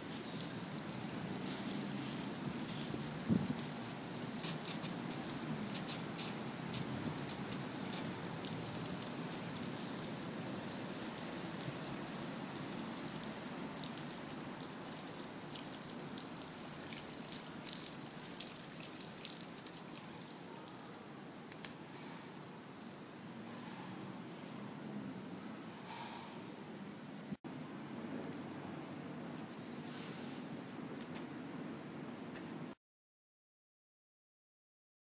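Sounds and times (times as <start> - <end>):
hose water splashing: 0.0 - 21.8.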